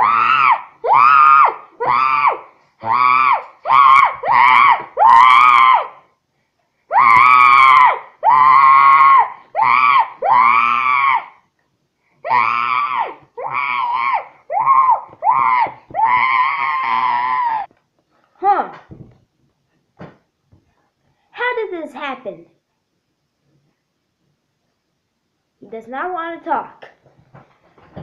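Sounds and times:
child making monkey screeches: 0:06.9 - 0:11.4, 0:12.2 - 0:17.7.

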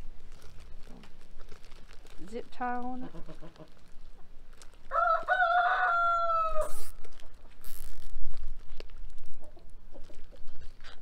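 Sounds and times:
plastic bag crinkling: 0:00.0 - 0:05.6, 0:06.7 - 0:09.4
rooster crowing: 0:04.9 - 0:06.8
zip tie clicking: 0:06.7 - 0:09.0.

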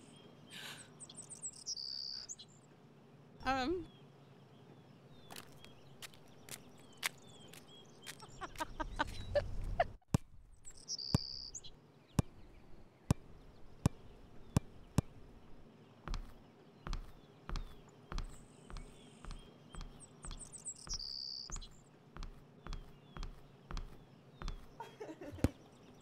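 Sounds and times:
footsteps on grass and paving: 0:05.2 - 0:09.4, 0:16.1 - 0:24.9.

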